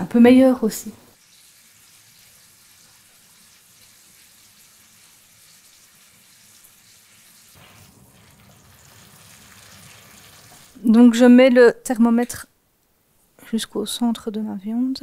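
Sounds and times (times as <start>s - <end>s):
meat sizzling in a frying pan: 1.2s - 10.8s.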